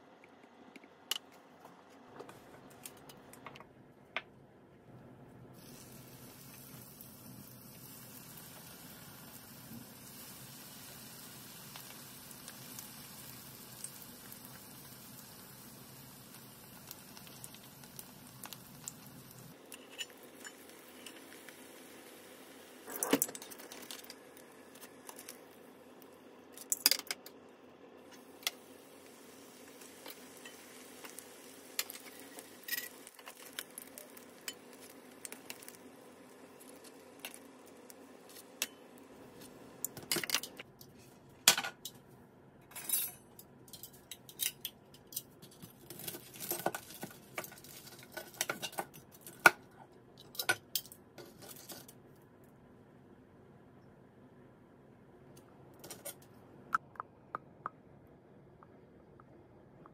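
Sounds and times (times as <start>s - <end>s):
oil sizzling in frying pan: 5.6s - 22.9s, 28.1s - 39.1s
metal tongs clinking and tapping: 42.7s - 45.7s.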